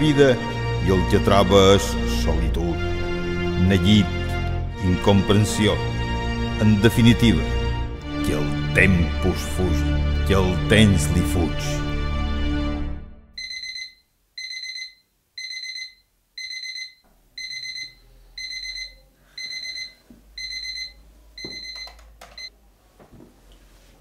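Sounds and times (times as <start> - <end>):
alarm clock beeping: 13.4 - 22.5
soft knocks and rustles: 23.0 - 24.0.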